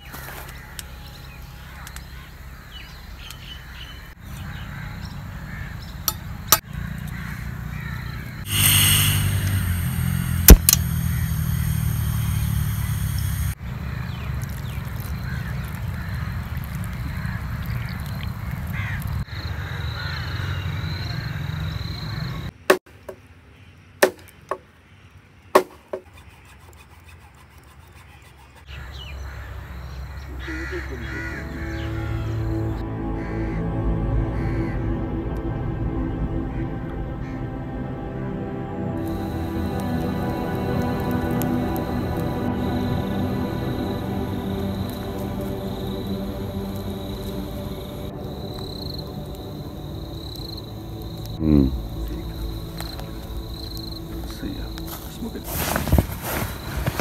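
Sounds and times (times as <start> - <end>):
bird calls: 0.0 - 22.5, 23.5 - 33.5
low rumble: 8.3 - 13.6, 31.2 - 57.0
loud hiss: 8.4 - 13.6, 39.0 - 57.0
sharp clicks: 8.5 - 13.6.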